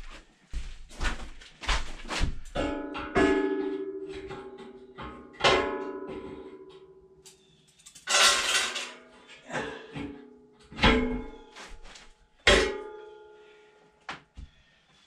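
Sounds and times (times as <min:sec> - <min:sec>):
metal scraping: 0:07.9 - 0:09.4
metal stove clanking: 0:08.0 - 0:09.1.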